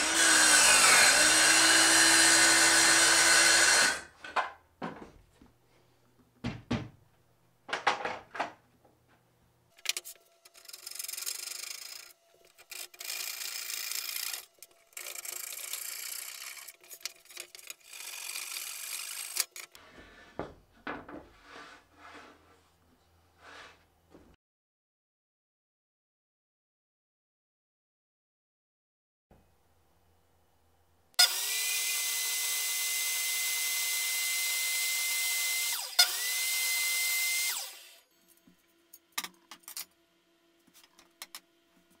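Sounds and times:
circular saw cutting plywood: 0.0 - 4.2, 9.8 - 20.4, 31.2 - 38.6.

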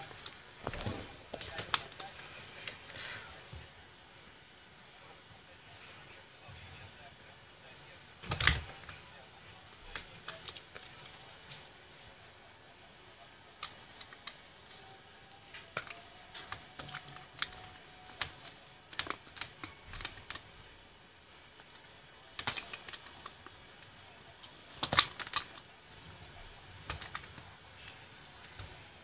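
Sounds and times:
plastic toy wand clicking and tapping: 13.6 - 20.5, 21.6 - 29.0.

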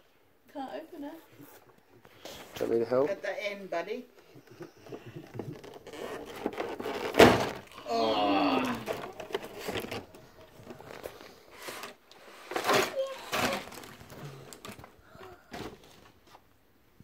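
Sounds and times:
packaging rustling: 5.1 - 7.8, 8.6 - 16.4.

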